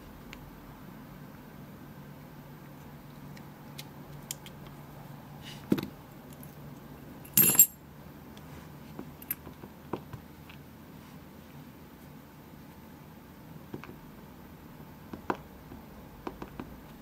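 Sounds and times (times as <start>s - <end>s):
small metal parts clicking: 7.3s - 7.8s.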